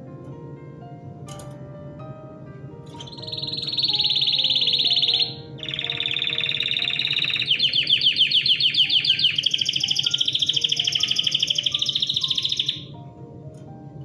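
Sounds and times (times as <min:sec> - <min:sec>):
soft plucked background music: 0:00.0 - 0:14.0
canary singing trills: 0:02.9 - 0:13.0.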